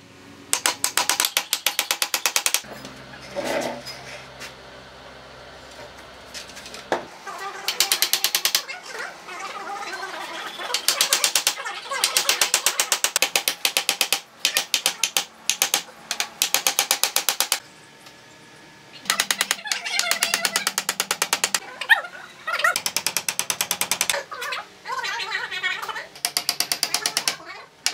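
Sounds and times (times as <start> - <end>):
hammer driving nails into wood: 0.5 - 2.6, 10.7 - 17.6, 19.1 - 21.6.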